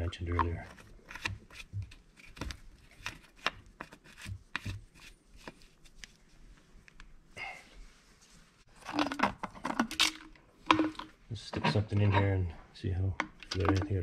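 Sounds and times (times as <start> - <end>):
filler cap clicking and rubbing: 0.2 - 7.2, 13.2 - 14.0.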